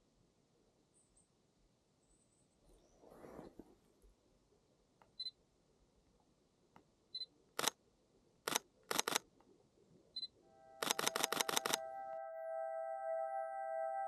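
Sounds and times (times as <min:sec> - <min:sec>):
camera focus beeps: 0:08.5 - 0:09.2, 0:10.2 - 0:11.8
camera shutter clicks: 0:08.5 - 0:09.2, 0:10.8 - 0:11.8
singing bowl music: 0:10.5 - 0:10.9, 0:11.7 - 0:14.0.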